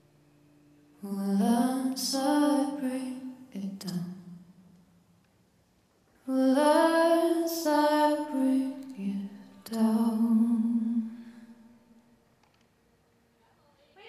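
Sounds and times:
woman singing soft ballad: 1.0 - 4.4, 6.2 - 11.6.

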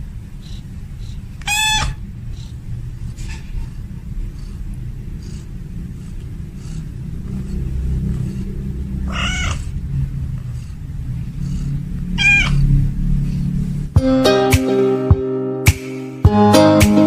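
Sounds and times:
steady low rumble: 0.0 - 14.2
cat meowing: 1.4 - 2.0, 9.1 - 9.7, 12.2 - 12.7.

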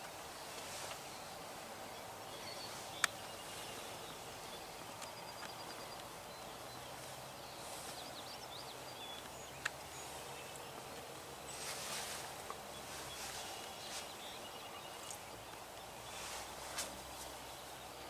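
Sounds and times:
songbird chirps and whistles: 0.4 - 18.0
sharp clicks: 3.0 - 3.2.

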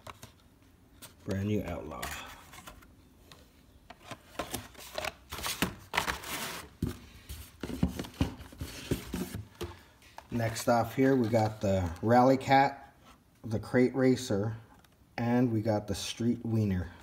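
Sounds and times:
plastic blister packs rustling: 3.9 - 12.2.

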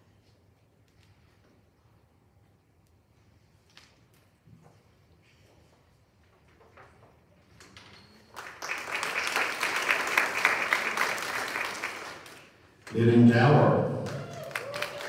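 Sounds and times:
audience applause: 8.3 - 13.3, 13.9 - 15.0.

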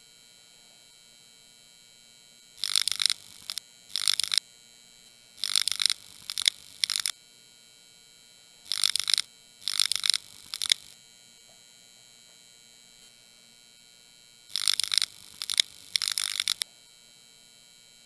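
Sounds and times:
faint steady hum: 0.0 - 18.0
crackling noise bursts: 5.4 - 7.1, 14.5 - 16.6.

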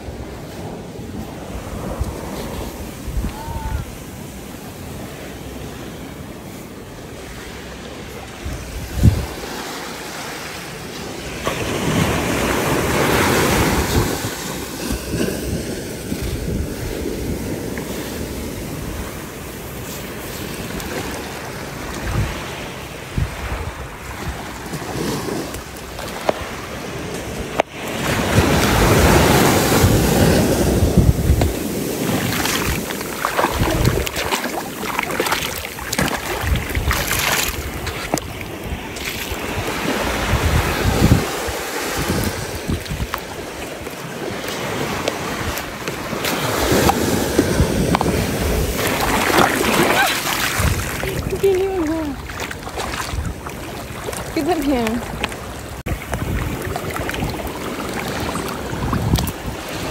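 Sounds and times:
wind noise on microphone: 0.0 - 4.4, 8.2 - 9.6, 11.9 - 21.0, 21.6 - 26.6, 28.0 - 43.7, 44.6 - 59.9
surf washing over sand: 0.0 - 59.9
hands scooping wet sand: 27.7 - 40.2, 40.8 - 59.9.

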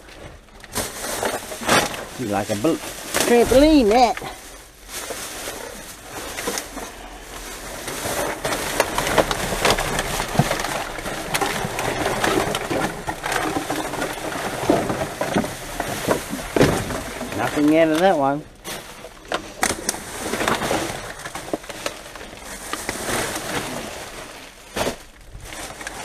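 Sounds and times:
plastic bags rustling: 0.0 - 26.0
rubbish clicking and knocking: 7.9 - 18.2.

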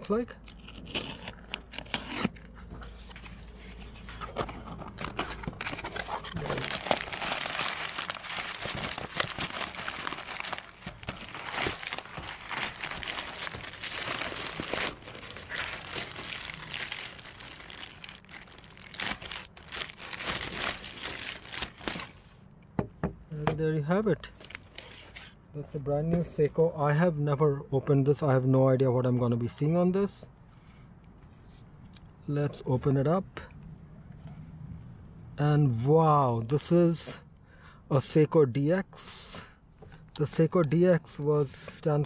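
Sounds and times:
packing tape tearing: 0.4 - 2.4, 5.0 - 22.1
packing paper rustling: 0.5 - 22.2.

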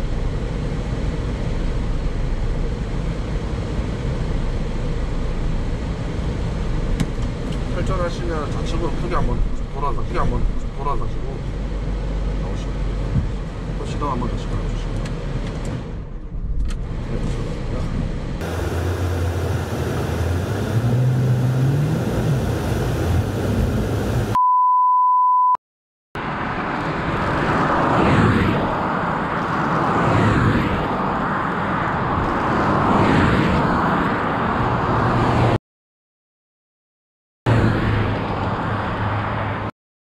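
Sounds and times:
engine rising in pitch: 18.4 - 24.4
test-tone beep: 24.4 - 25.6.

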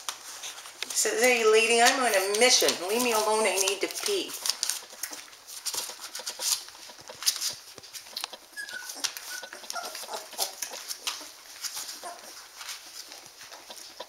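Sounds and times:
soft clicks and rustling: 0.0 - 14.0
puppies squeaking and whimpering: 4.4 - 14.0.

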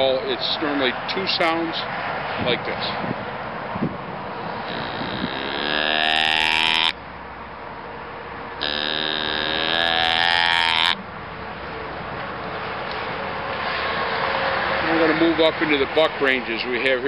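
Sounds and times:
deer call bleats: 4.7 - 7.0, 8.6 - 11.0.

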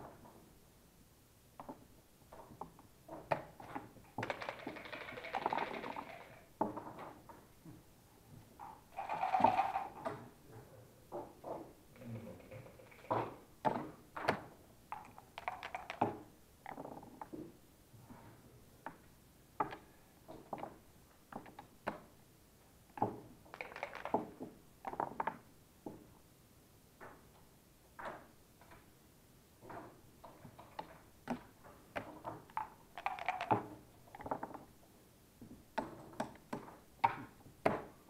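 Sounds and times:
dice clattering: 4.2 - 6.4, 9.0 - 10.0, 15.0 - 16.0, 23.5 - 24.2, 32.6 - 34.6
checkers clicking on board: 4.2 - 6.5, 9.0 - 10.0, 14.9 - 16.2, 23.5 - 24.4, 32.5 - 34.3.

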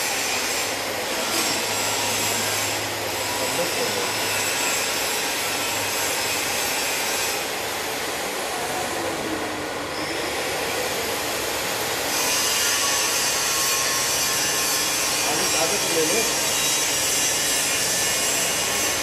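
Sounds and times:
rasping workshop machinery hiss: 0.0 - 8.3, 9.9 - 19.0.

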